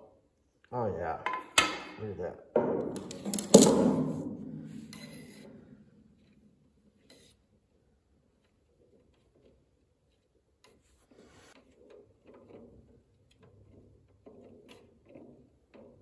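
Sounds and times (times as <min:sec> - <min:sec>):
stir stick scraping in metal can: 0:04.6 - 0:16.0.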